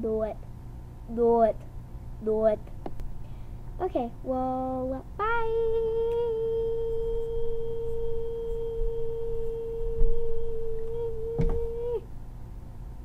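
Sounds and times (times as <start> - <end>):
girl singing long high note: 3.8 - 12.1
short knock: 11.3 - 11.7.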